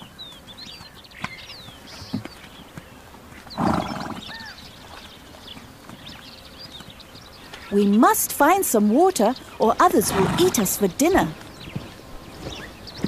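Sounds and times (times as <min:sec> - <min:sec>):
birds chirping: 0:00.0 - 0:13.0.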